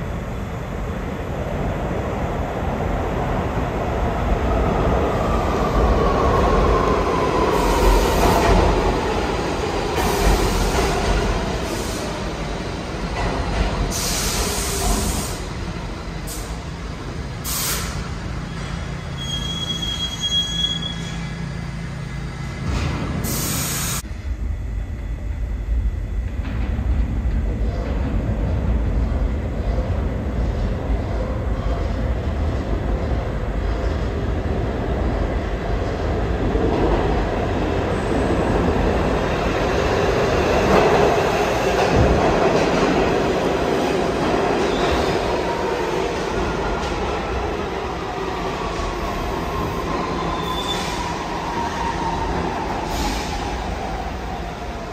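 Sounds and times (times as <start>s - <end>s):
subway train rumble: 0.0s - 54.9s
train wheels squealing: 18.4s - 21.6s, 49.8s - 53.6s.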